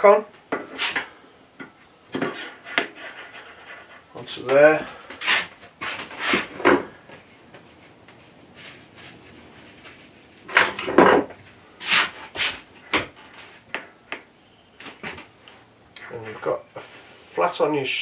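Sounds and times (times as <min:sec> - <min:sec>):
tools knocking and clattering: 0:10.5 - 0:11.6.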